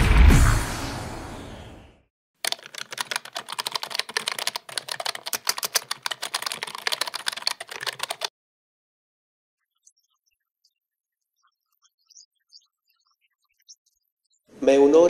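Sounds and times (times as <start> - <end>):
music tail: 0.0 - 1.9
rapid keyboard typing clicks: 2.4 - 8.3.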